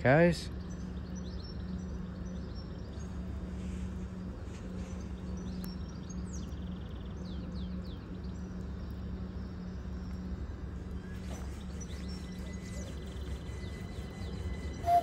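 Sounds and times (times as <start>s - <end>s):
electric train hum and rumble: 0.0s - 15.0s
small birds chirping: 0.0s - 15.0s.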